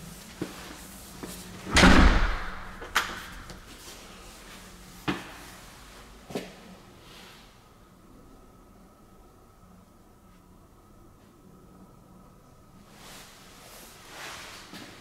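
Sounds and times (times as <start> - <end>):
door shutting with deep thud: 1.7 - 3.5.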